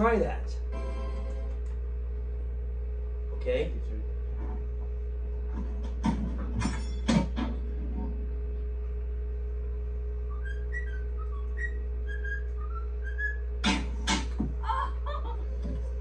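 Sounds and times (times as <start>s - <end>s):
cockatiel whistling through tv: 10.3s - 13.5s.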